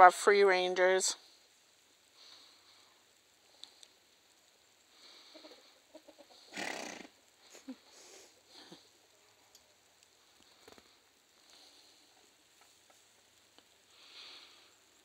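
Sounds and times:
chickens clucking: 0:05.1 - 0:06.6
raspy chicken squawk: 0:06.5 - 0:07.1.

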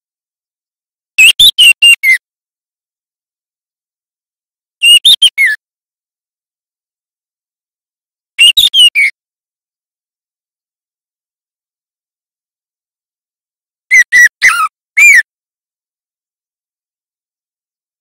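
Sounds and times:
bird whistling song: 0:01.2 - 0:02.2, 0:04.8 - 0:05.6, 0:08.4 - 0:09.1, 0:13.9 - 0:15.2.

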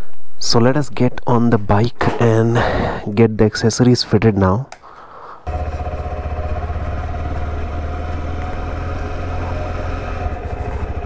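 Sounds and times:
motorcycle engine running: 0:05.5 - 0:11.0.

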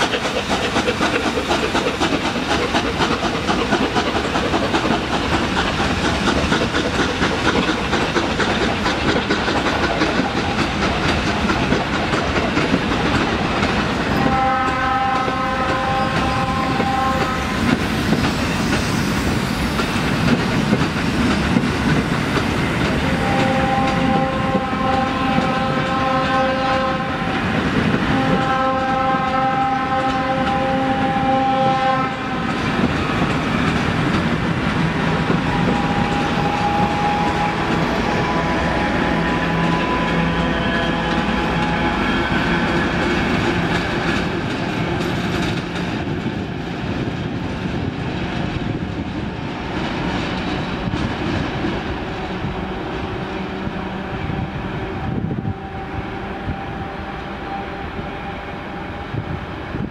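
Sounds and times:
train wheels clattering over rails: 0:00.0 - 0:57.6
steam locomotive departing: 0:00.0 - 0:59.9
locomotive whistle blasts: 0:14.2 - 0:17.6, 0:23.0 - 0:27.4, 0:28.1 - 0:32.4, 0:35.4 - 0:42.8, 0:54.3 - 0:59.3.

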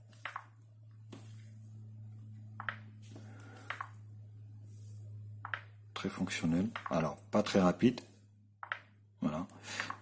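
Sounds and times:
low hum: 0:00.0 - 0:10.0
finger tapping on phone: 0:03.6 - 0:04.0.

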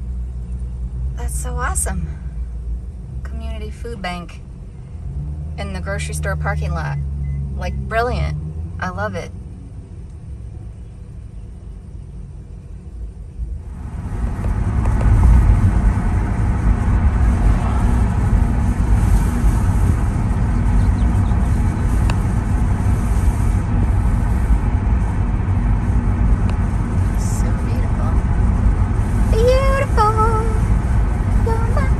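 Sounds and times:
van engine and road noise: 0:00.0 - 0:31.9.

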